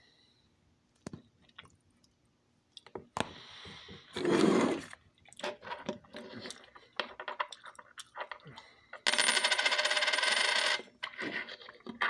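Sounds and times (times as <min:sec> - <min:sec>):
eating clicks and utensil sounds: 0:06.4 - 0:08.7.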